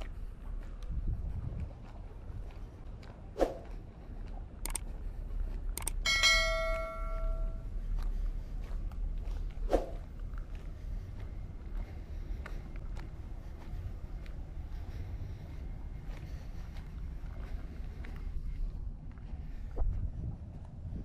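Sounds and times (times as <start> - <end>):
low wind rumble: 0.0 - 21.0
mouse clicks: 4.6 - 4.8
bell chime: 6.0 - 7.6.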